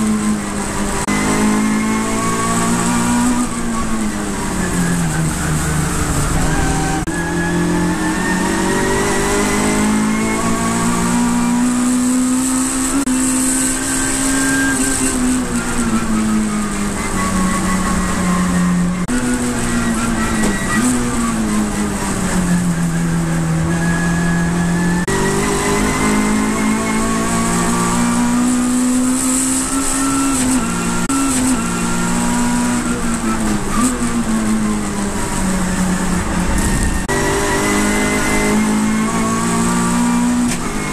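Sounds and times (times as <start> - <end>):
race car engine accelerating: 0.0 - 40.9
gear change: 30.3 - 40.9.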